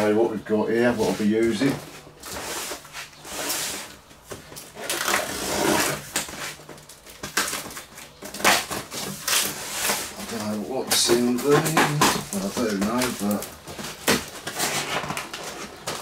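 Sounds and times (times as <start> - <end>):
cardboard flaps rustling: 0.8 - 16.0
packing tape slit and torn: 4.5 - 16.0.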